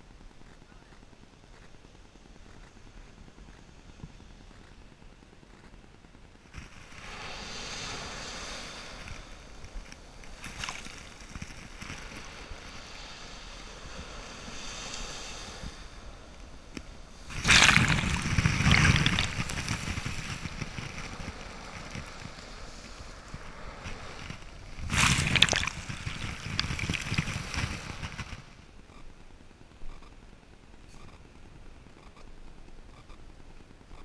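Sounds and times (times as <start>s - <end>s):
surf washing up sand: 6.6s - 28.6s
small ocean waves breaking: 6.6s - 28.7s.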